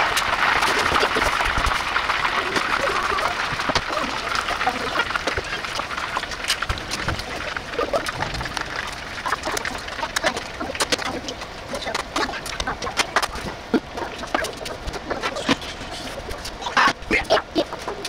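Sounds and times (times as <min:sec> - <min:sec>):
oil deep-frying and crackling: 0:00.0 - 0:18.0.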